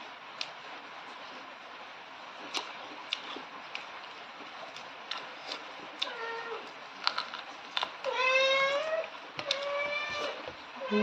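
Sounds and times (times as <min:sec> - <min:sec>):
wet lip smacks and chewing: 0:02.4 - 0:06.1.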